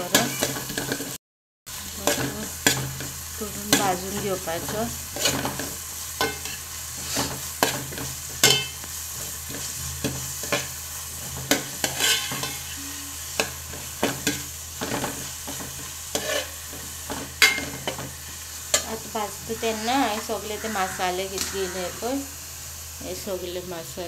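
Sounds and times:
onions sizzling in butter: 0.0 - 24.0
steel spoon scraping a pot: 11.3 - 13.6, 16.1 - 16.6.

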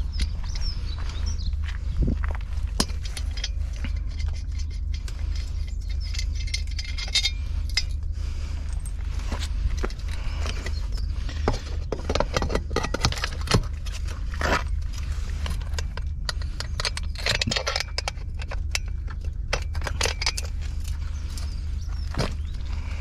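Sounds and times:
footsteps on gravel: 0.0 - 4.4, 8.0 - 12.4, 13.5 - 16.0, 20.5 - 23.0
metal clinks and scrapes: 2.4 - 23.0.

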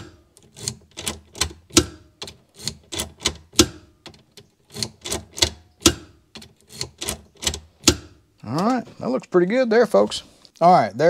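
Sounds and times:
sharp mechanical clicks: 0.0 - 8.0.

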